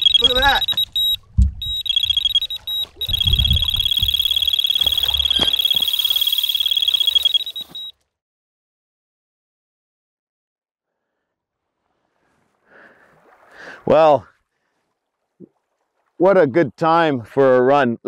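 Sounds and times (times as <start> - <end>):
low thuds: 0.0 - 5.7
bite alarm high beeps: 0.0 - 7.9.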